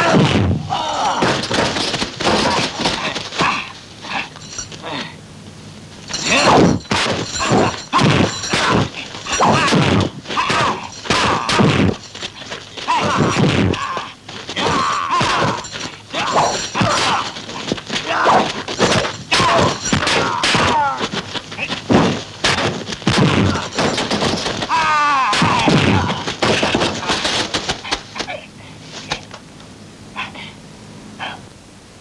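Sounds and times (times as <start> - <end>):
punch and kick impacts: 0.0 - 3.6, 6.1 - 27.9
something shattering: 6.1 - 13.8, 14.6 - 17.8, 18.4 - 20.9, 21.6 - 27.7.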